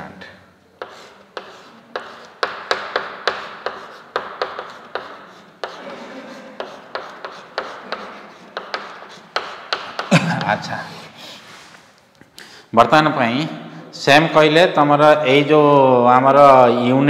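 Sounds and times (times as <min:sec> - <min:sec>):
chalk tapping on chalkboard: 0:00.8 - 0:10.7
chalk scraping on chalkboard: 0:00.8 - 0:12.0.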